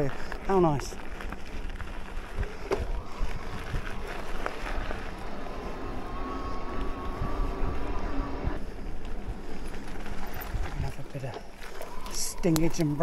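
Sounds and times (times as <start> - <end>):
bike knocking and rattling: 0.0 - 13.0
wind on microphone: 2.2 - 9.5.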